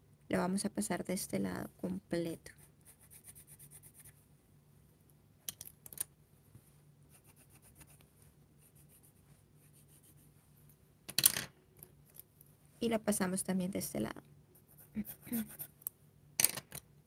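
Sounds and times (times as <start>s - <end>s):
pencil scratching on paper: 2.5s - 4.2s, 7.1s - 10.3s, 14.6s - 15.8s.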